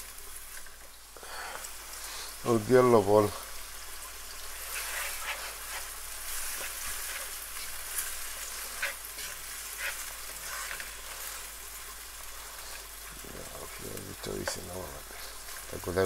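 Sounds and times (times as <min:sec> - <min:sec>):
onions sizzling in hot oil: 0:00.0 - 0:16.0
wooden spoon scraping a pan: 0:01.3 - 0:16.0.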